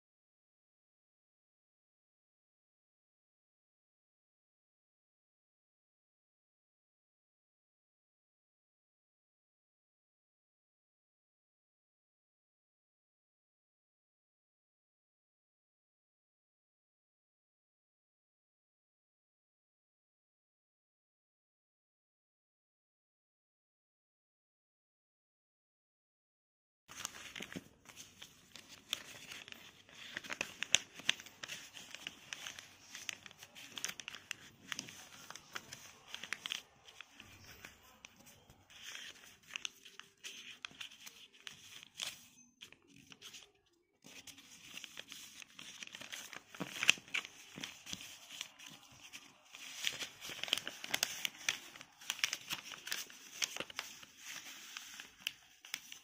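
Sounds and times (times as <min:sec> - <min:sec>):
paper rustling and crinkling: 0:26.9 - 0:56.0.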